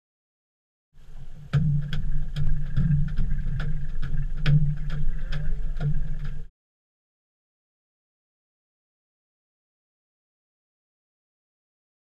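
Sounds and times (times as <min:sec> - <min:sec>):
boat motor humming: 0:01.0 - 0:06.5.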